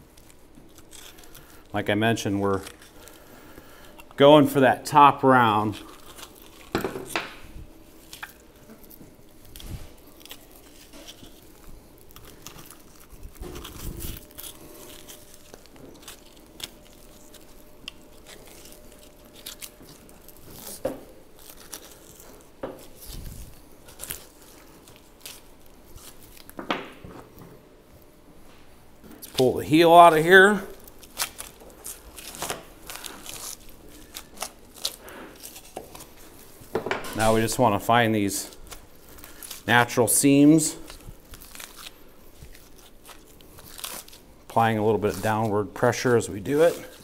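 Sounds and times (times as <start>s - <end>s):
meat being torn: 0.0s - 4.2s, 5.4s - 26.6s, 29.1s - 47.0s.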